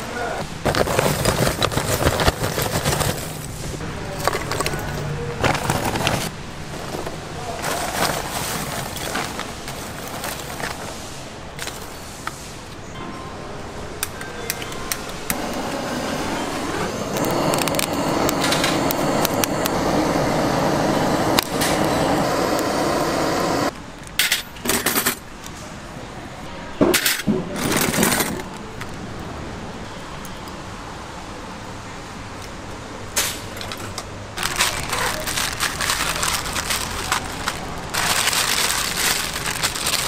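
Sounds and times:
gas blowtorch running: 15.3 - 23.7
charcoal lumps clinking: 34.4 - 40.0.

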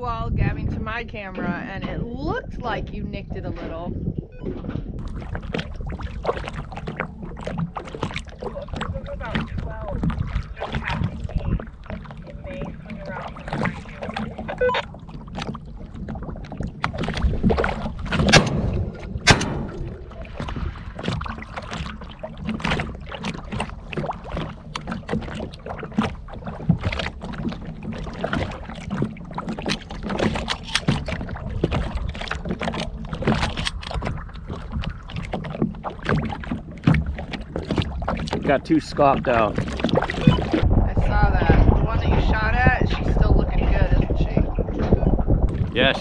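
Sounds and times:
low rumble: 0.0 - 24.7, 38.4 - 46.0
waves slapping boat hull: 0.0 - 46.0
loud knocks: 18.0 - 20.6.

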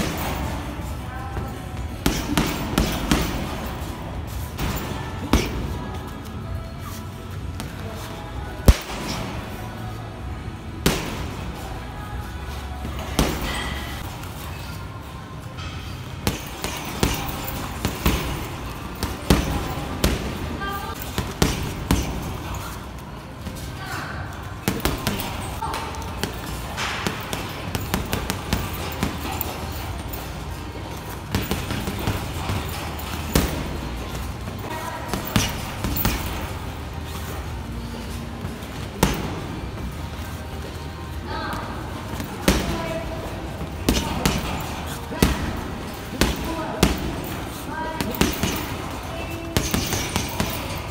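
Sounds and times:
boxing gloves punching heavy bag: 0.0 - 6.0, 6.6 - 9.9, 15.6 - 50.9
gloves punching heavy bag: 1.8 - 3.9, 21.0 - 22.7, 35.1 - 36.6, 42.0 - 50.9.

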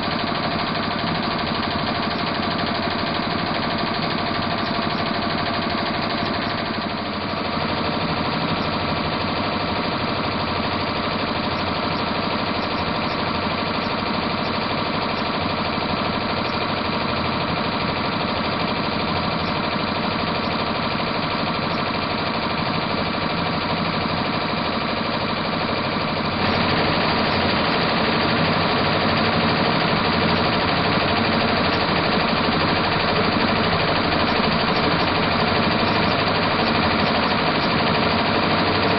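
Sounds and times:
embroidery machine stitching: 0.0 - 38.9.

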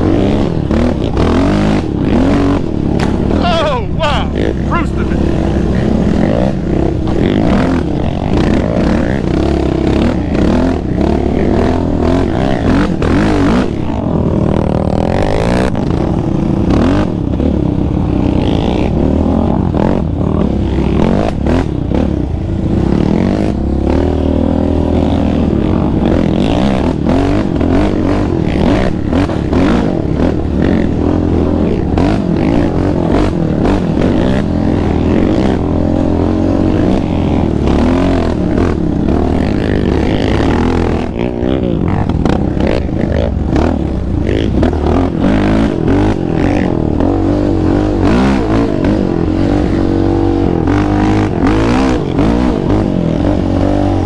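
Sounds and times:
atv engine revving: 0.0 - 54.0.

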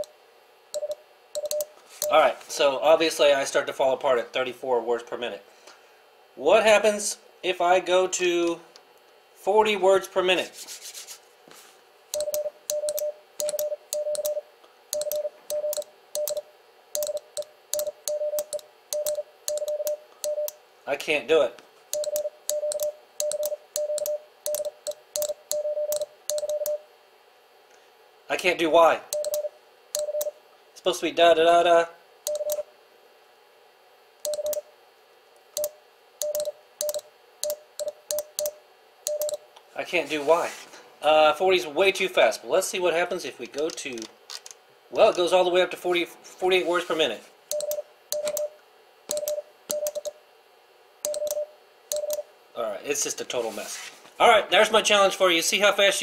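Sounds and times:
morse code beeps: 0.8 - 2.2, 12.2 - 16.4, 17.0 - 20.6, 22.0 - 26.8, 29.1 - 30.4, 32.3 - 32.6, 34.3 - 34.7, 35.6 - 39.4, 47.5 - 50.1, 51.1 - 52.3.

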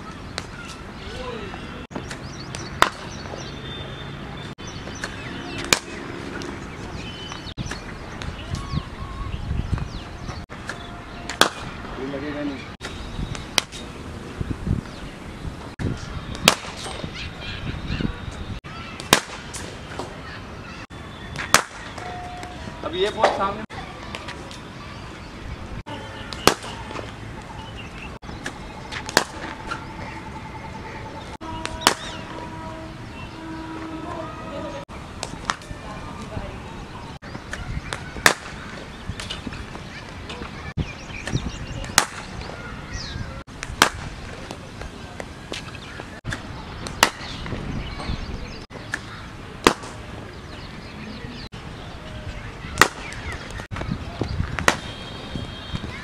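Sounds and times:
cricket bat striking ball: 11.3 - 11.7, 16.4 - 16.8, 21.4 - 22.1, 26.4 - 27.0, 31.6 - 32.4, 38.2 - 38.6, 41.9 - 42.3, 43.7 - 44.1, 47.0 - 47.3, 52.8 - 53.4, 54.6 - 54.9.

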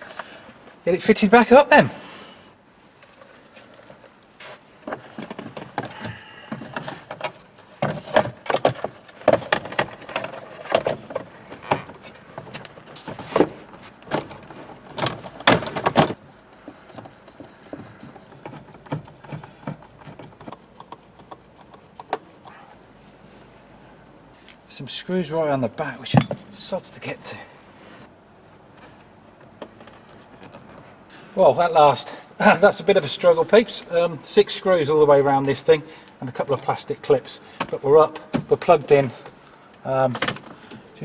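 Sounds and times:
plastic knocks clicks and rattles: 6.5 - 12.0, 14.1 - 16.2.

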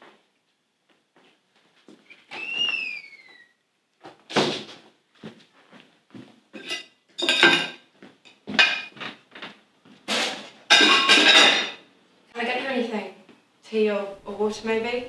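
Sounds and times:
crockery and cutlery clattering: 6.6 - 11.9.

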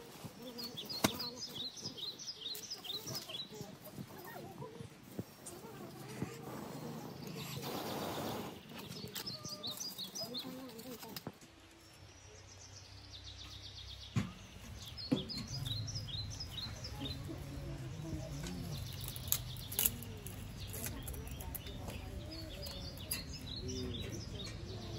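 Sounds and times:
birds chirping: 0.0 - 24.9
wood fire crackling: 15.6 - 23.1.

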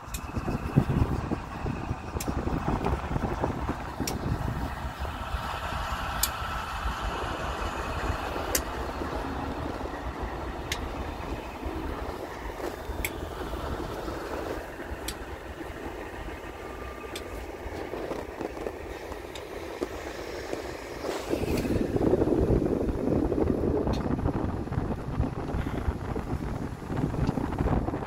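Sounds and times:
low engine rumble: 0.0 - 28.0
wind noise rushing: 0.0 - 28.0
light sharp ticks: 6.2 - 6.4, 8.5 - 8.8, 10.7 - 10.9, 12.7 - 13.2, 15.0 - 15.3.

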